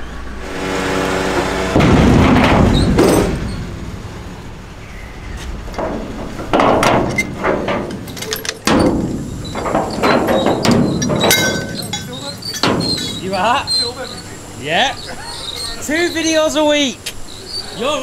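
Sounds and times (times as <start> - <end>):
low engine rumble: 0.0 - 18.0
loud bangs and clattering knocks: 0.8 - 13.8.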